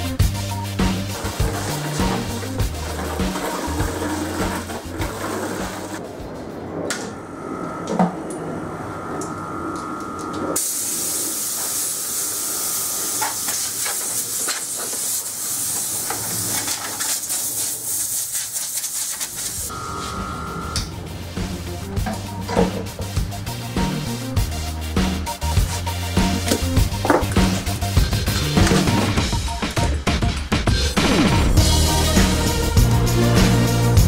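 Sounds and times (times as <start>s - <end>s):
compressed air hissing: 10.6s - 19.7s.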